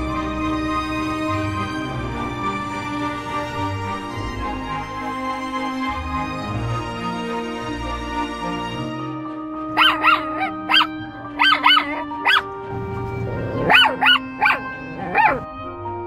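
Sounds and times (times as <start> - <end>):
light background music: 0.0 - 16.0
small dog yelping barks: 9.8 - 12.5, 13.6 - 15.4.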